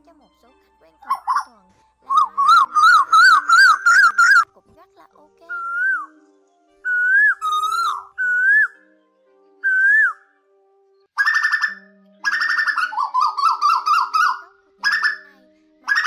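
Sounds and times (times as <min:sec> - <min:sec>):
koel whistled calls: 0:02.1 - 0:04.5, 0:05.5 - 0:06.2, 0:06.9 - 0:08.8, 0:09.7 - 0:10.2, 0:11.2 - 0:15.3.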